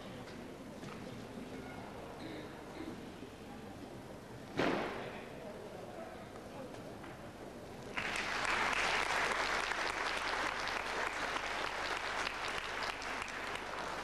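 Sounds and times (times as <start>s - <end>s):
audience applauding: 7.9s - 14.0s.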